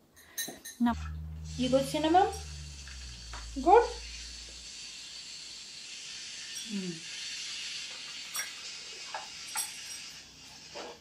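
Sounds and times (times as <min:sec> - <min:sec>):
person humming while eating: 0:00.9 - 0:04.6
steady hiss: 0:01.1 - 0:11.0.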